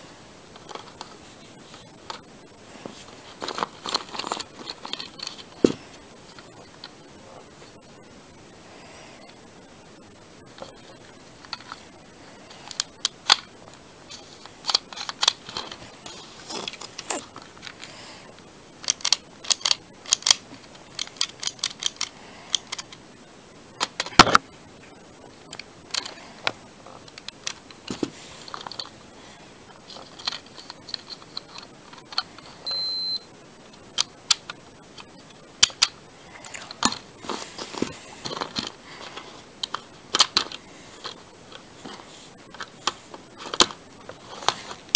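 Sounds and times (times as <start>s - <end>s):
plastic toy clicks: 18.8s - 23.0s
short high beep: 32.6s - 33.3s.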